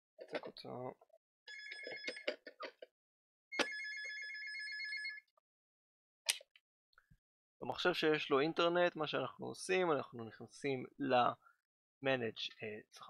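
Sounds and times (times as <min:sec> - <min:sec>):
telephone ringing: 0:01.5 - 0:02.6, 0:03.5 - 0:05.3.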